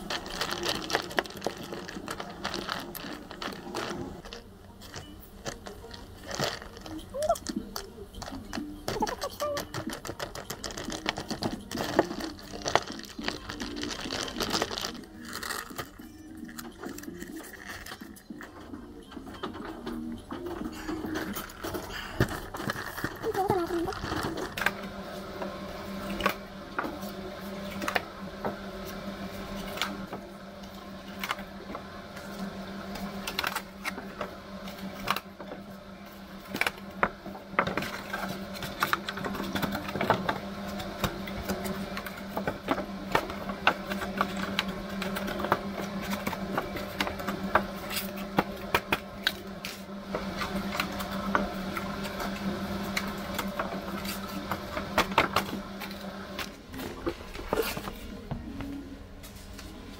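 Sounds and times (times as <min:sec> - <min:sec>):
clicks of small hard objects: 0:00.0 - 0:18.6
low machine hum: 0:00.0 - 0:59.9.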